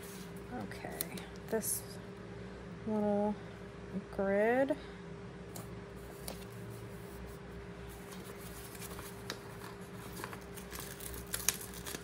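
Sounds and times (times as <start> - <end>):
faint steady hum: 0.0 - 12.0
paper rustling: 6.0 - 12.0.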